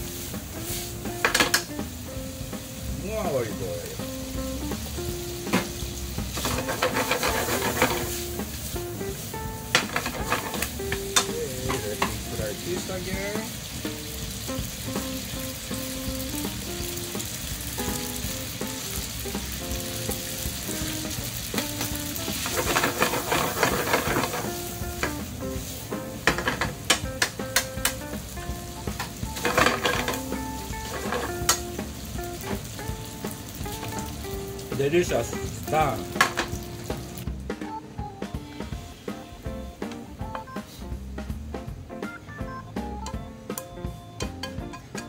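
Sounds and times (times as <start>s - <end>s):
food sizzling in a frying pan: 0.0s - 41.9s, 42.8s - 45.0s
chopsticks clicking and scraping pan: 1.2s - 1.8s, 6.4s - 8.2s, 9.7s - 12.3s, 21.6s - 25.2s, 26.2s - 28.1s, 29.0s - 31.8s.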